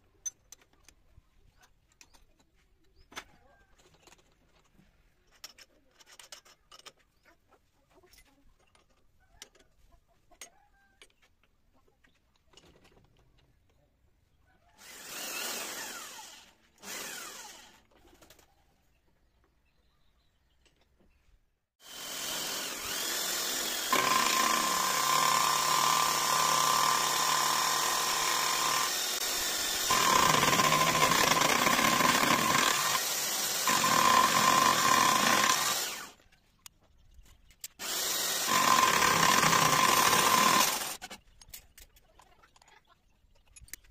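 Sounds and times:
milling cutter cutting metal: 21.8 - 36.2, 37.8 - 41.0.

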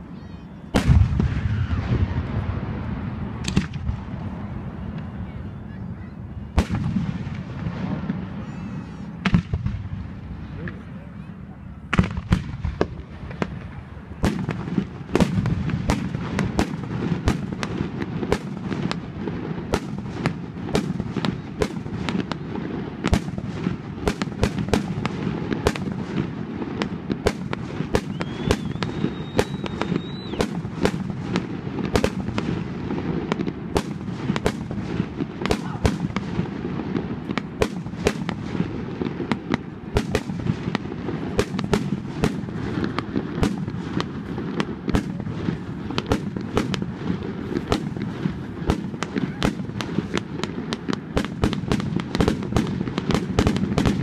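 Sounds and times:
thin high whistle: 28.1 - 30.4.

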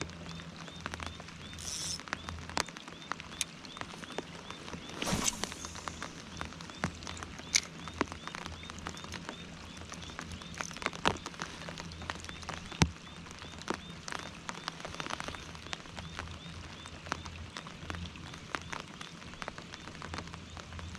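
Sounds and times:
rain pattering on fabric and water: 0.0 - 20.9
fishing reel ticking: 1.6 - 2.0.

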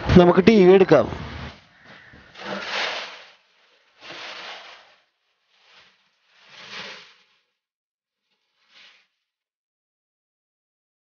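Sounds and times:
plastic packaging rustling: 1.5 - 7.6.

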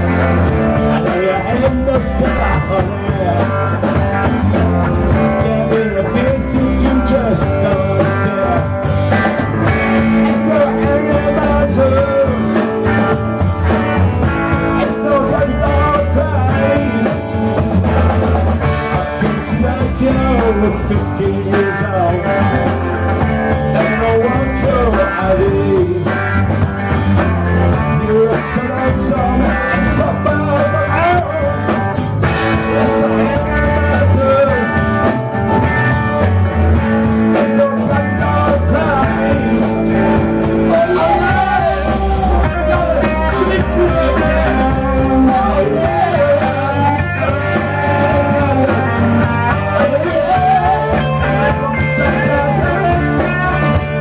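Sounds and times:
drum kit: 0.0 - 54.0
electric guitar: 0.0 - 54.0
keyboards: 0.0 - 54.0.

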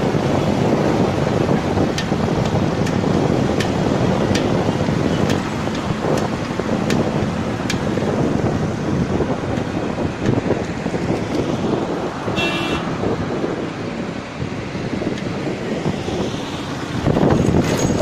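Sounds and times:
road and traffic noise: 0.0 - 18.0
wind rushing over microphone: 0.0 - 18.0
vehicle horn beep: 12.3 - 12.9.

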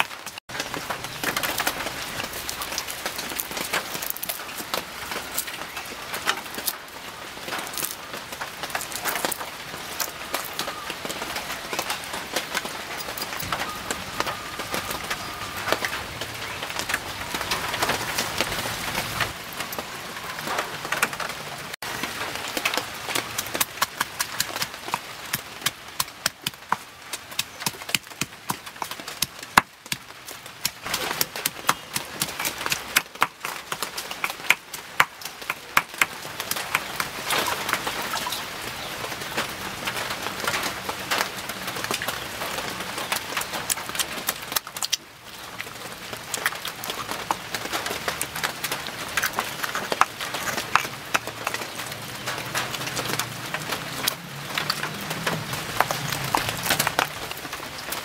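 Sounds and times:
pestle pounding in stone mortar: 23.1 - 37.1, 49.7 - 51.6.

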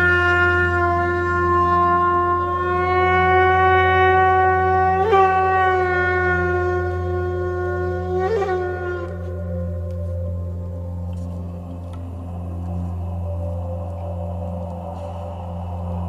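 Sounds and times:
horn-like wind instrument note: 0.0 - 10.2
steady low drone: 0.0 - 16.0.

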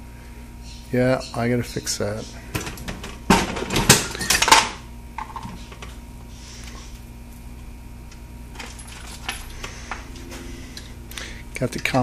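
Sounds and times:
low steady hum: 0.0 - 12.0
metal parts clinking and rattling: 8.5 - 10.0.

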